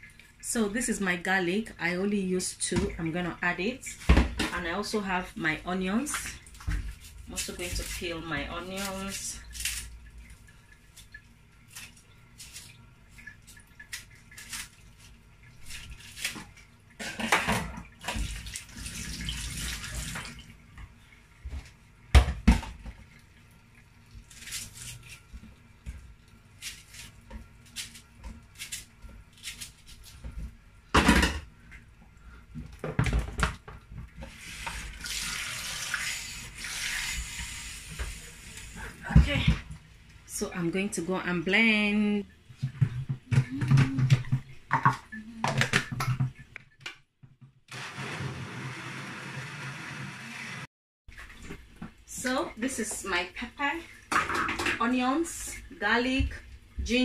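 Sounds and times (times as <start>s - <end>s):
tap water splashing into sink: 15.5s - 23.3s, 42.5s - 47.4s, 54.0s - 54.9s.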